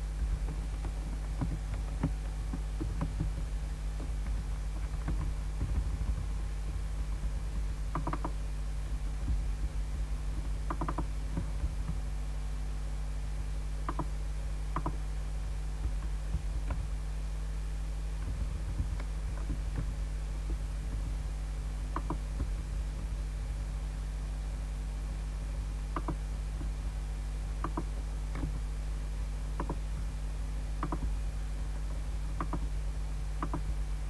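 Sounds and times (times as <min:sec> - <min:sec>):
low electrical hum: 0:00.0 - 0:34.0
computer mouse and keyboard clicks: 0:00.3 - 0:08.4, 0:10.3 - 0:12.0, 0:13.8 - 0:14.1, 0:14.7 - 0:15.0, 0:18.2 - 0:21.2, 0:21.9 - 0:23.1, 0:25.9 - 0:26.7, 0:27.6 - 0:28.6, 0:29.6 - 0:30.1, 0:30.8 - 0:31.2, 0:31.8 - 0:32.7, 0:33.4 - 0:33.8.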